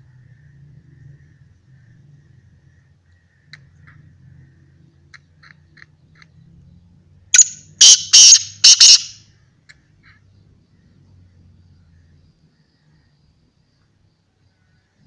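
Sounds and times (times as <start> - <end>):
francolin harsh call: 7.4 - 9.2.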